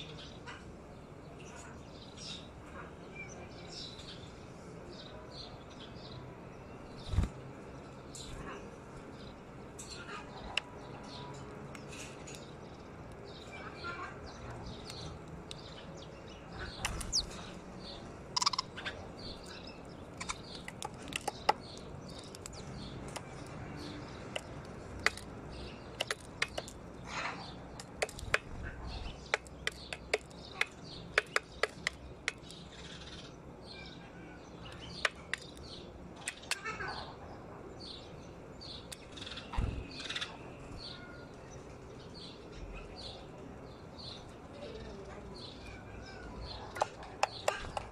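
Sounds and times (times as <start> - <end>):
sparrows chirping: 0.0 - 47.9
beaks pecking on metal sill: 8.2 - 33.3, 34.6 - 36.9, 46.5 - 47.9.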